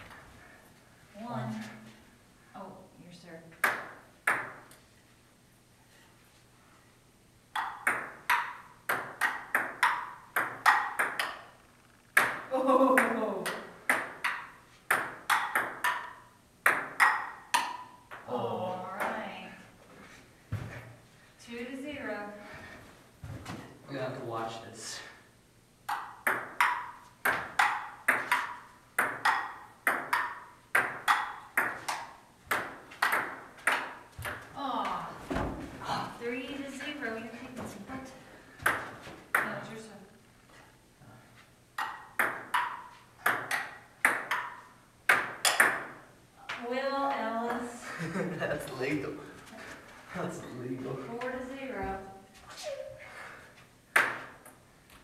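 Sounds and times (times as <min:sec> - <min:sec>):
ping-pong ball clicking: 0:07.5 - 0:18.2, 0:25.9 - 0:34.4, 0:41.8 - 0:46.0.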